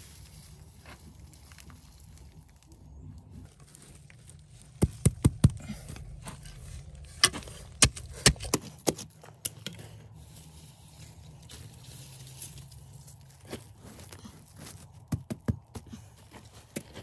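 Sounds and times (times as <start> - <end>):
hoe chopping pebbly soil: 4.6 - 9.5, 11.2 - 17.0.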